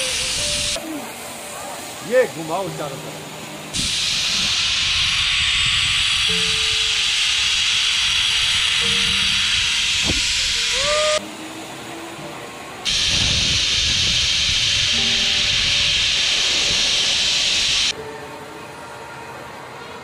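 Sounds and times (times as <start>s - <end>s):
zip line trolley rushing on cable: 0.0s - 1.0s, 3.7s - 18.0s
wind rush on microphone: 3.8s - 7.6s, 9.4s - 11.0s, 12.9s - 17.3s.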